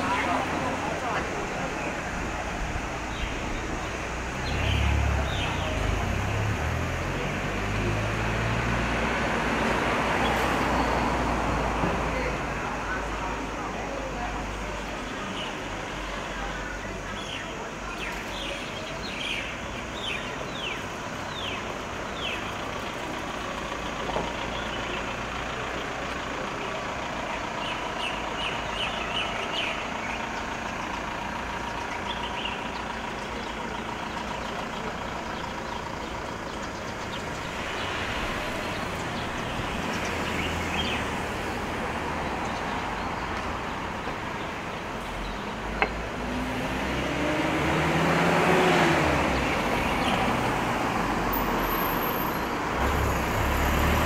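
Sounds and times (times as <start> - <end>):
street traffic noise: 0.0 - 54.0
bird chirping: 14.8 - 23.4, 27.6 - 46.3.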